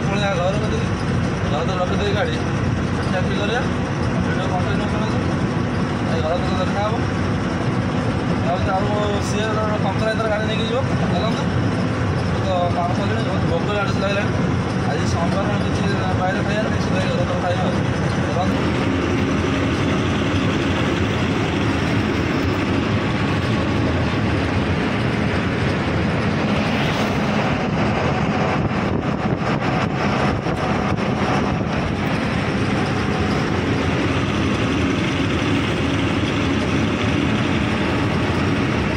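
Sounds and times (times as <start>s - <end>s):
diesel truck engine running: 0.0s - 38.9s
road and tyre noise: 0.0s - 38.9s.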